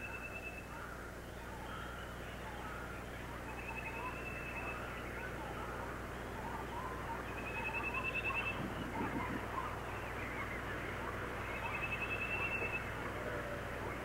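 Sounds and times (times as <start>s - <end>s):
low steady hum: 0.0s - 14.0s
rapid bird trills: 0.0s - 14.0s
small birds chirping: 0.0s - 14.0s.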